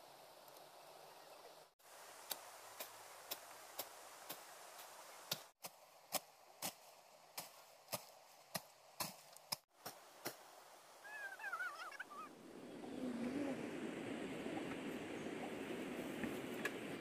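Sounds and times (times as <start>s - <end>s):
machete chopping brush: 2.2s - 10.5s.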